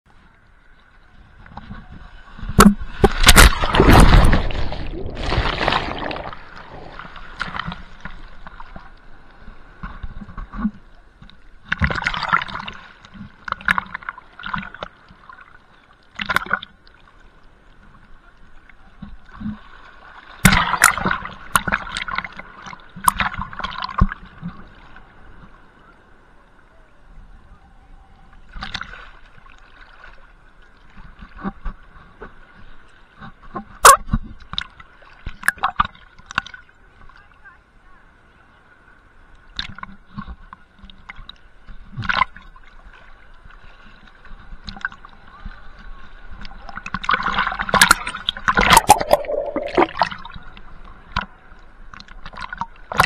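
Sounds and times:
water sloshing and gurgling: 0.1s - 25.8s, 28.3s - 37.4s, 39.4s - 53.0s
waves splashing: 0.2s - 30.4s, 42.3s - 53.0s.

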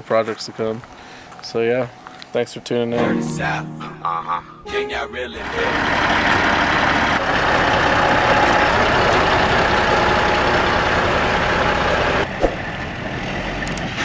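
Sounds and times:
diesel truck engine idling: 5.4s - 13.7s.

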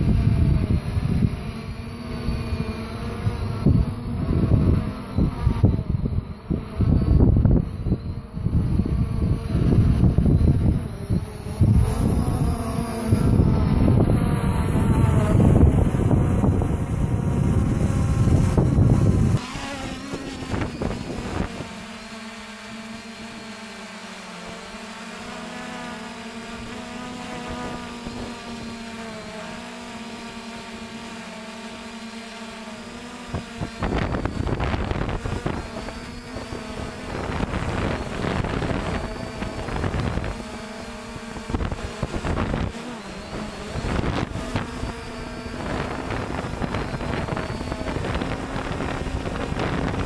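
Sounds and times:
wind buffeting microphone: 0.0s - 22.0s, 33.2s - 50.0s
drone motors humming: 0.0s - 50.0s.

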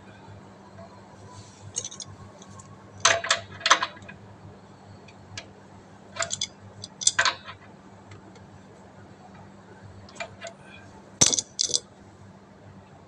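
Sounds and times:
metal plumbing fitting clinking: 1.8s - 2.0s, 6.2s - 7.4s, 11.2s - 11.8s.

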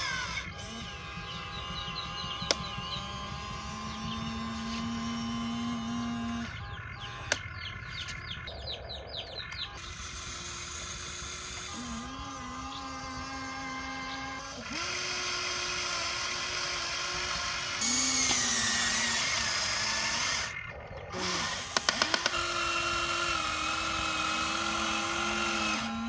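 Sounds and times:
birds chirping: 0.0s - 26.0s
electric motors whining: 0.0s - 26.0s
sharp clicks: 1.3s - 3.2s, 7.2s - 8.4s, 21.2s - 22.6s.

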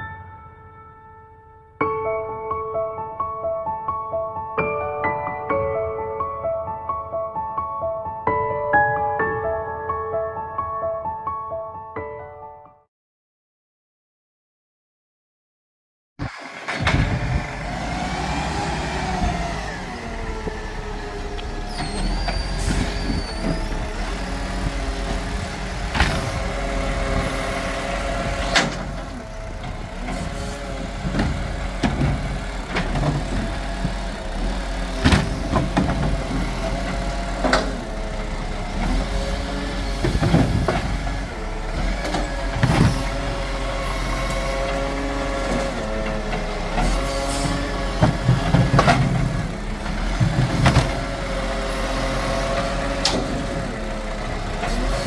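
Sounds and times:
garbage truck diesel engine: 16.2s - 55.0s
hydraulic arm lifting bins: 16.2s - 55.0s
plastic bins banging on metal: 34.9s - 37.8s.

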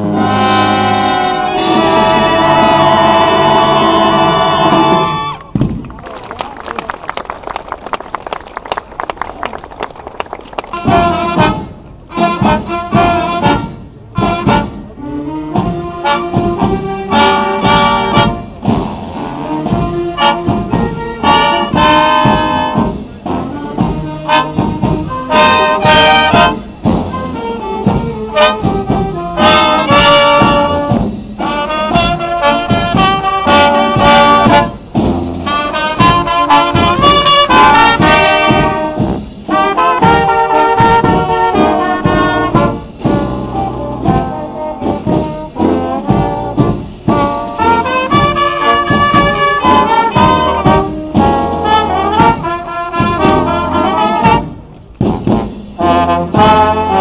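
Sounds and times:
marching brass band playing: 0.0s - 5.8s, 10.5s - 57.0s.

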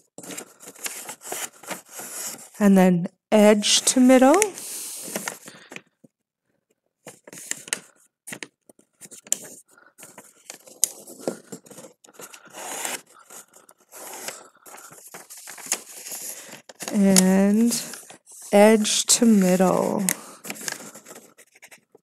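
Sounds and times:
paper rustling and scraping: 0.0s - 2.6s, 9.0s - 21.9s.

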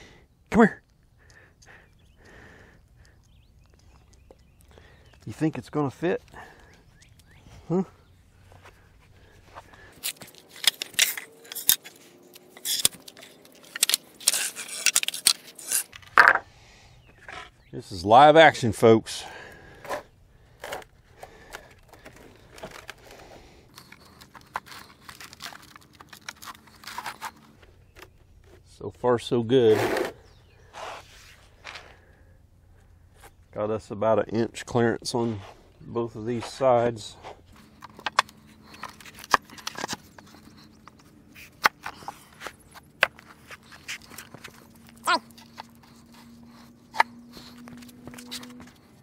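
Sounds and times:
wooden boards scraping and tapping: 12.6s - 16.4s
wooden boards knocking on concrete: 16.2s - 16.4s.

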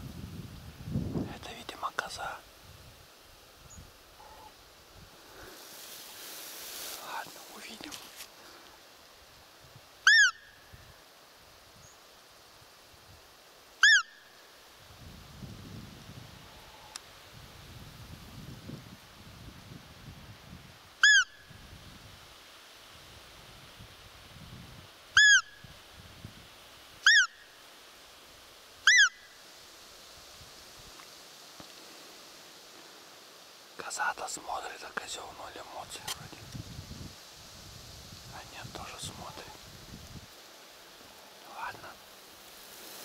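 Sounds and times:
deer call squeaks: 10.1s - 10.4s, 13.8s - 14.1s, 21.0s - 21.3s, 25.2s - 25.5s, 27.0s - 27.3s, 28.9s - 29.2s.

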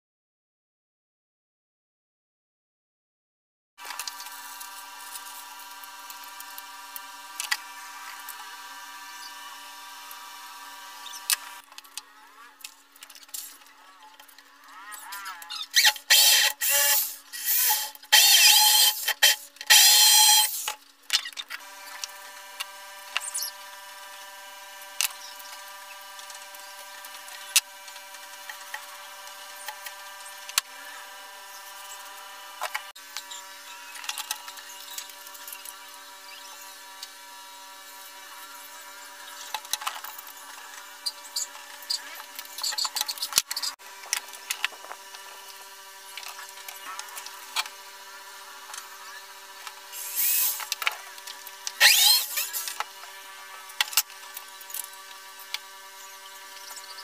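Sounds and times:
electric drill whining: 15.7s - 20.7s, 44.0s - 53.2s.

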